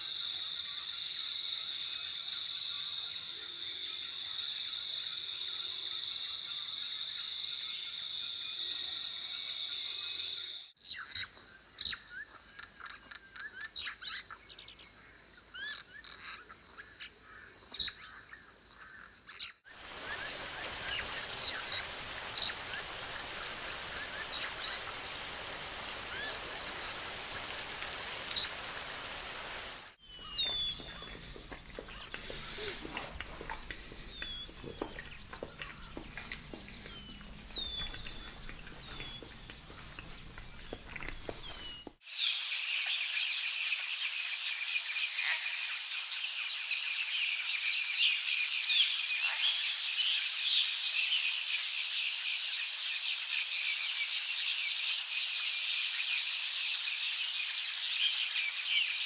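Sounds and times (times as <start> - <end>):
birds chirping and calling: 19.4 - 42.0
steady hiss: 19.7 - 43.8.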